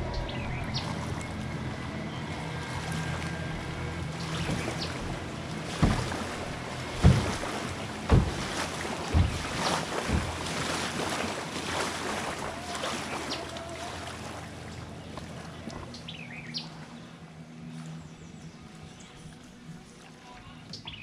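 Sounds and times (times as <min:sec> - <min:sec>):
water rushing past hull: 0:00.0 - 0:20.4
boat motor hum: 0:00.0 - 0:21.0
low thumps: 0:03.6 - 0:12.2.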